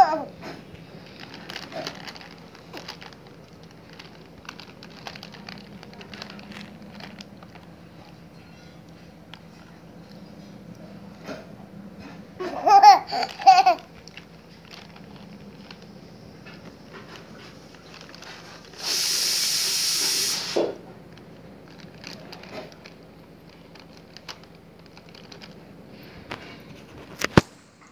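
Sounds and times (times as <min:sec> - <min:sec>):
child giggling: 0:12.4 - 0:13.9
steady hiss: 0:17.3 - 0:20.9.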